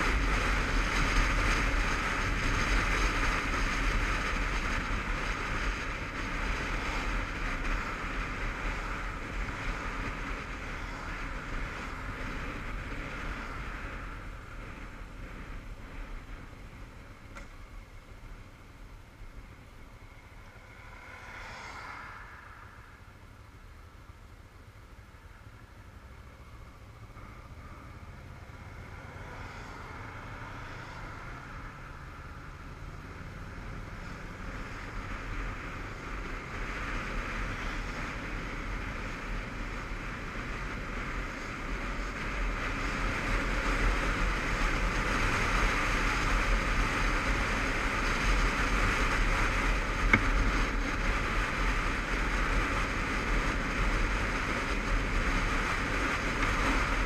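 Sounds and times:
wind rush: 0:00.0 - 0:17.2, 0:19.8 - 0:23.3
motorcycle engine: 0:00.0 - 0:18.5.

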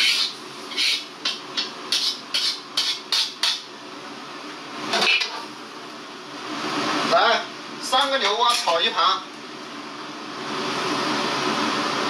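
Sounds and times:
spatula scraping iron wok: 0:00.0 - 0:03.6.

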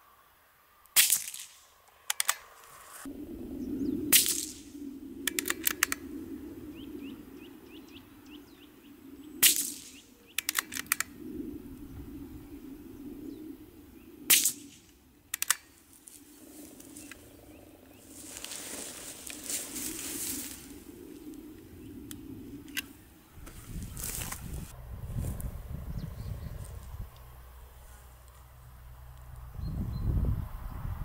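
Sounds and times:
rifle bolt metallic clicks: 0:01.2 - 0:02.6, 0:05.2 - 0:06.0, 0:10.4 - 0:11.1, 0:15.3 - 0:15.8, 0:22.1 - 0:22.9
bird chirping: 0:06.7 - 0:10.8
suppressed rifle shots: 0:14.3 - 0:15.7.

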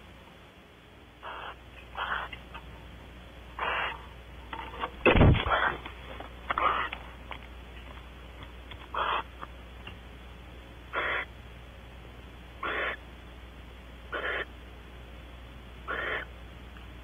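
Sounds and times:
owl hissing calls: 0:01.2 - 0:02.4, 0:03.6 - 0:04.1, 0:05.4 - 0:05.8, 0:06.5 - 0:07.0, 0:08.9 - 0:09.3, 0:10.9 - 0:11.3, 0:12.6 - 0:13.0, 0:14.1 - 0:14.5, 0:15.8 - 0:16.3.

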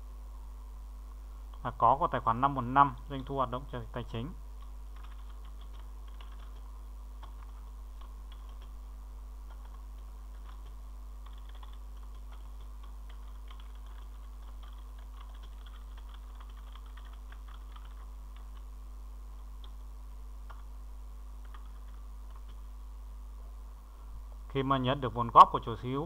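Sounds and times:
steady low hum: 0:00.0 - 0:26.0
keyboard typing: 0:04.6 - 0:08.8, 0:09.4 - 0:18.7, 0:20.4 - 0:20.7, 0:21.4 - 0:22.7.

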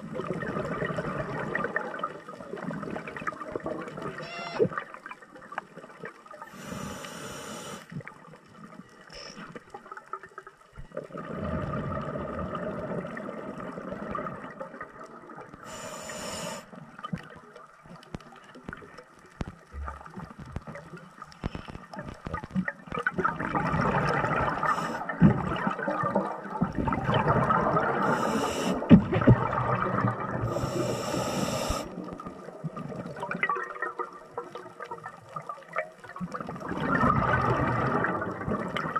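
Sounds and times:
regulator hissing inhalations: 0:06.5 - 0:07.9, 0:15.6 - 0:16.7, 0:24.6 - 0:25.0, 0:28.0 - 0:28.9, 0:30.5 - 0:31.9
bubbling exhalations: 0:23.2 - 0:32.0.

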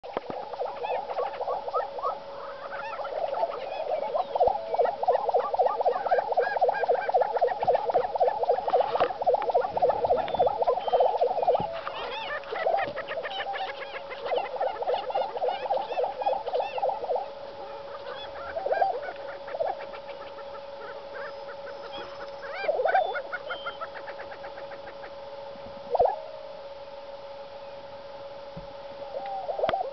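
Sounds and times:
prairie-chickens calling in pulsed notes: 0:00.0 - 0:29.9
steady low tone: 0:00.0 - 0:29.9.

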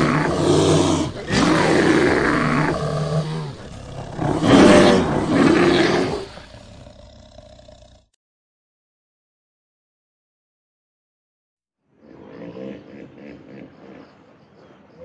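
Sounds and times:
bear roaring and growling: 0:00.0 - 0:08.2.

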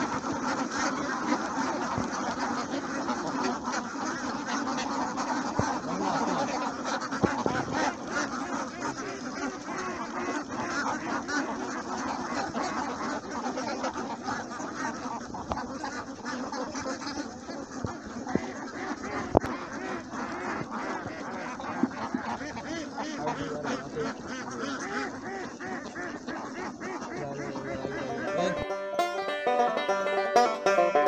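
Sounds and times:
flock of ducks quacking: 0:00.0 - 0:31.0.

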